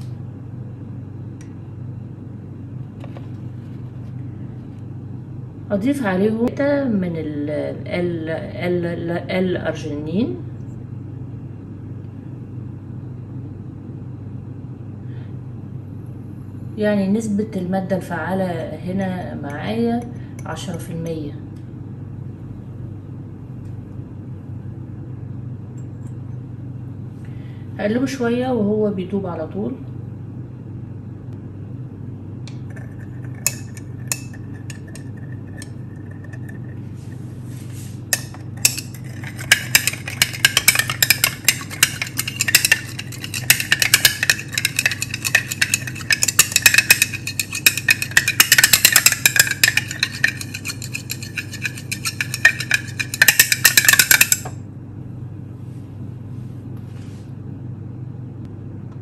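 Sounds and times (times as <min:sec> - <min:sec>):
steady low hum: 0:00.0 - 0:59.0
glass rod clinking in beaker: 0:32.7 - 0:35.7, 0:38.2 - 0:54.5.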